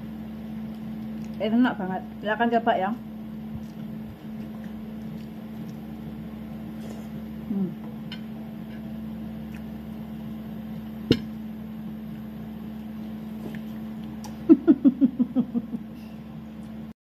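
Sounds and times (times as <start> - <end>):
steady low hum: 0.0 - 17.0
person laughing: 14.3 - 16.1.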